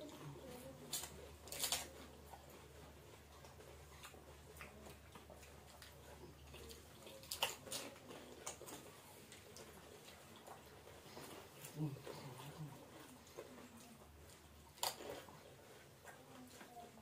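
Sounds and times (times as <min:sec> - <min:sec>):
crisp shells crunching: 0:00.9 - 0:01.9.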